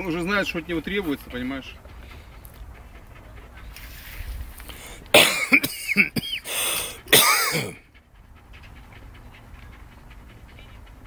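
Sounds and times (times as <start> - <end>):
person coughing: 5.1 - 7.8.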